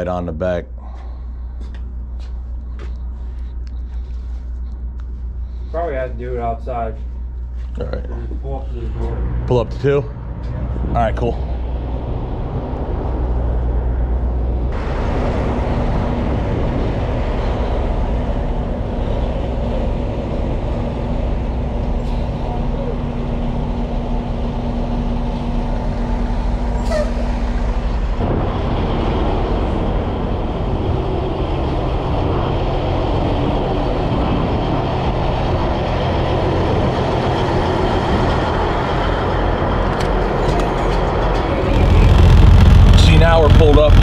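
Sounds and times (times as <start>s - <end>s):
diesel truck engine idling: 11.4s - 44.0s.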